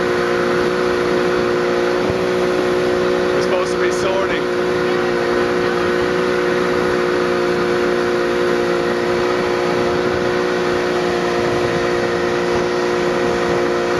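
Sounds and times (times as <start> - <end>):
motorboat engine running: 0.0 - 13.9
water rushing: 0.0 - 13.9.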